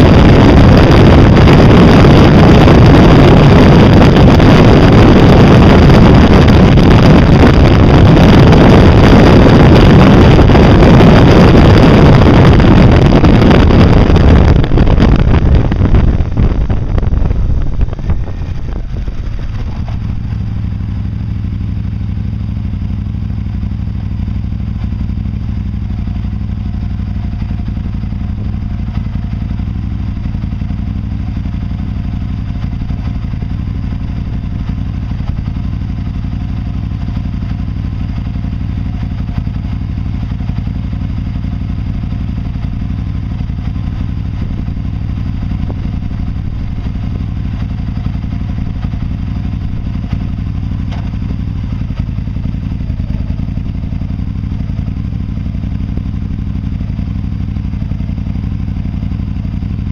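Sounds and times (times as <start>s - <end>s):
wind rushing over microphone: 0.0s - 23.6s, 40.2s - 55.8s
engine idling: 0.0s - 59.9s
road noise: 0.0s - 59.9s
vehicle engine: 0.0s - 59.9s.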